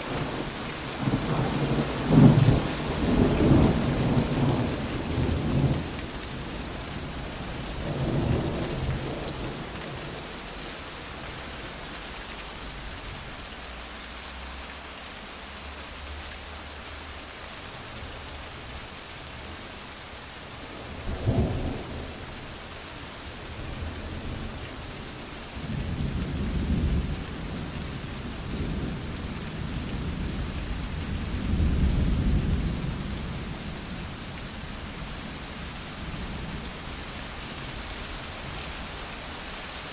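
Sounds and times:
thunder rumbling: 0.0s - 10.3s
steady rain: 0.0s - 39.9s.

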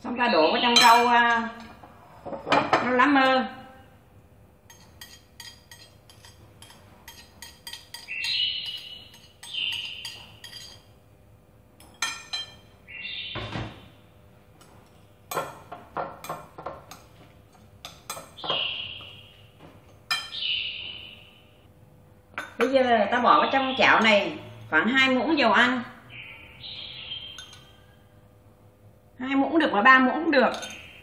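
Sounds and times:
glass bowl ringing chimes: 0.7s - 1.2s, 27.2s - 28.0s
chopsticks clinking in glass bowl: 4.7s - 10.9s, 30.5s - 30.9s.

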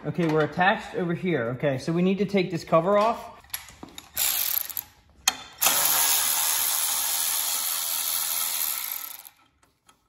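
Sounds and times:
electric ratchet running: 4.2s - 5.0s, 5.6s - 9.4s.

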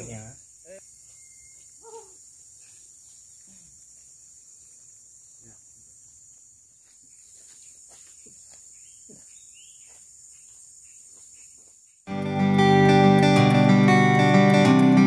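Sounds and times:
insects droning: 0.0s - 14.7s
acoustic guitar music: 12.1s - 15.0s.

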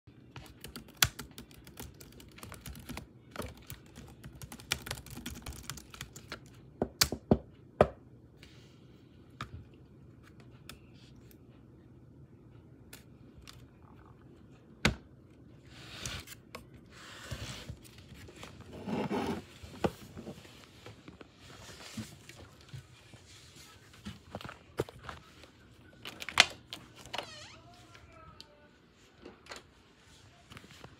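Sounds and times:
laptop keyboard typing: 0.3s - 7.2s.

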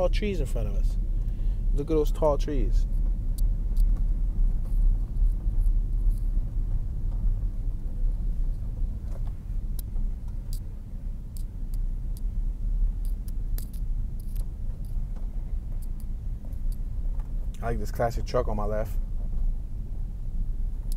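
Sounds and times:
car driving rumble inside cabin: 0.0s - 20.9s
faint ticks: 11.3s - 12.3s, 13.0s - 17.7s.

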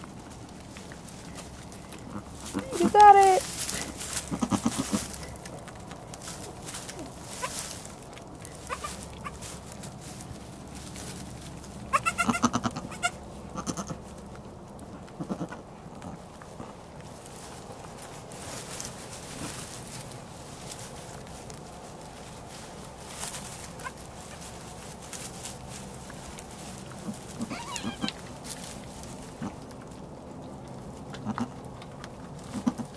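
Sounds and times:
straw rustling: 0.0s - 32.9s
soft low goat calls: 2.0s - 5.2s, 8.6s - 9.4s, 11.9s - 14.0s, 15.1s - 16.2s, 27.0s - 28.2s
goat bleating: 2.1s - 3.5s, 4.1s - 5.1s, 8.7s - 9.4s, 11.9s - 14.0s, 15.2s - 15.6s, 27.0s - 28.2s, 31.2s - 31.6s, 32.5s - 32.9s.

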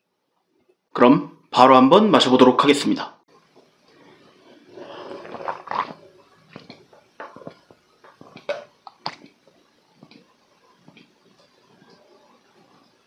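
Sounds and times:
man slurping: 4.5s - 9.4s
man gulping and swallowing: 4.6s - 12.5s.

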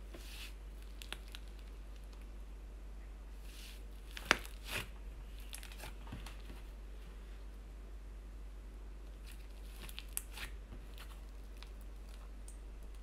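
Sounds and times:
slime squish: 0.2s - 2.3s, 3.4s - 6.4s, 9.1s - 13.0s
slime clicking and crackling: 0.8s - 2.3s, 4.0s - 6.0s, 9.2s - 13.0s.

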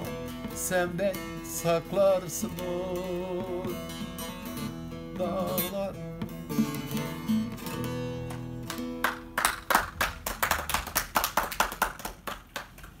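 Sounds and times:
plucked lute notes: 0.0s - 9.4s
hand clapping: 8.2s - 13.0s.

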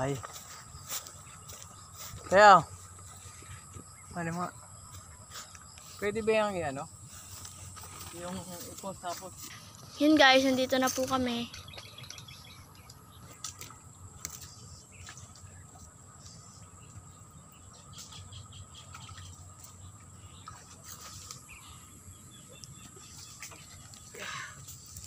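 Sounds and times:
dry leaves and twigs crackling: 0.0s - 16.5s
insects calling: 0.0s - 25.0s.

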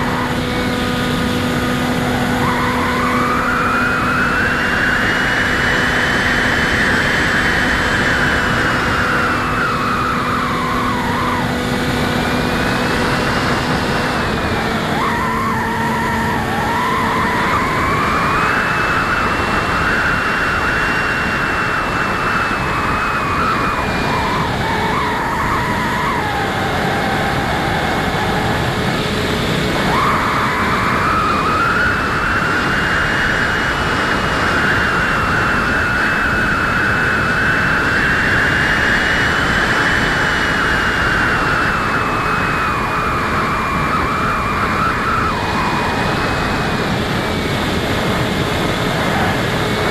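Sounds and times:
electric motor and propeller whine: 0.0s - 49.9s
rushing wind noise: 0.0s - 49.9s.

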